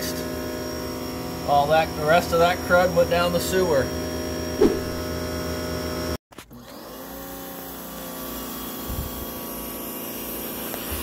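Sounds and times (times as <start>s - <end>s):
pressure washer humming: 0.0s - 5.5s.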